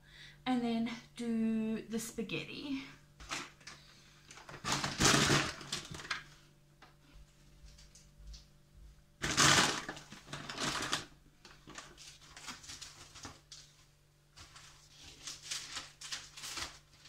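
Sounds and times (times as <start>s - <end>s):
newspaper rustling and crinkling: 3.2s - 6.3s, 9.2s - 17.0s.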